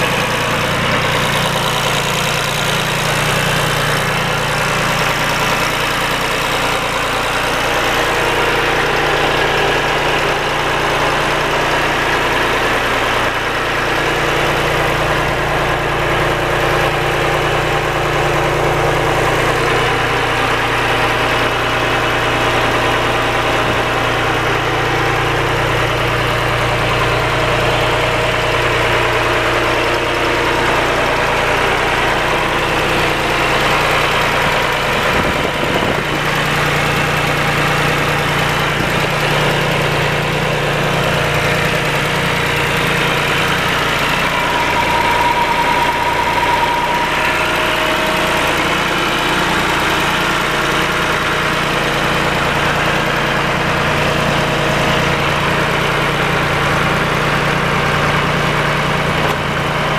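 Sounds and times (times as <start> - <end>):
tractor engine idling: 0.0 - 59.9.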